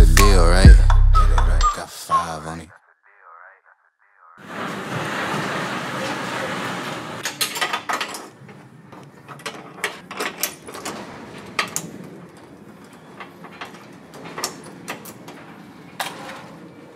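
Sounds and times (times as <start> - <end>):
metal door latch clicking: 9.0 - 16.4.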